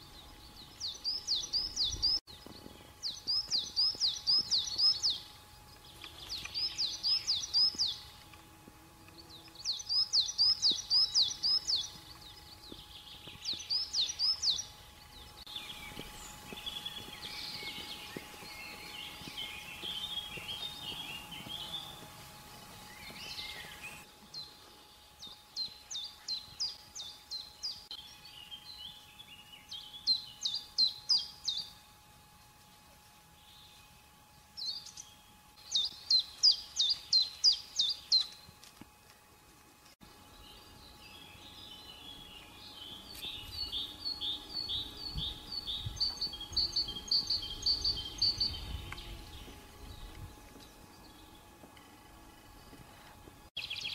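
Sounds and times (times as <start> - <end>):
bird trill: 0.0 - 5.3, 6.0 - 8.1, 9.6 - 22.0, 40.4 - 52.7
songbirds chirping: 0.0 - 53.9.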